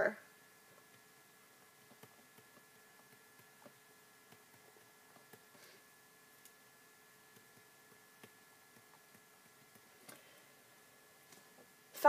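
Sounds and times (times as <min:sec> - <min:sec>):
faint room hum: 0:00.0 - 0:12.0
stylus tapping on tablet screen: 0:00.7 - 0:05.6, 0:07.3 - 0:10.2.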